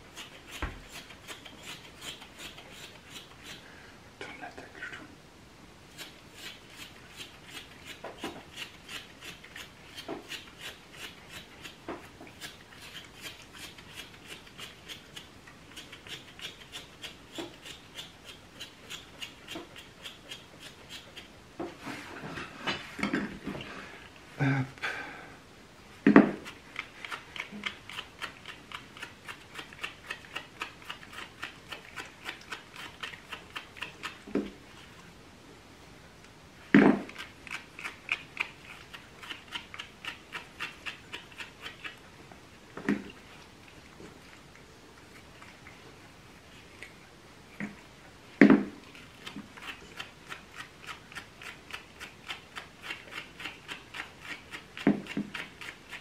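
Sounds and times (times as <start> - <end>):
stripping tool rasping through fur: 0.0 - 3.6, 5.9 - 21.3, 26.1 - 34.6, 37.0 - 42.0, 48.9 - 56.0.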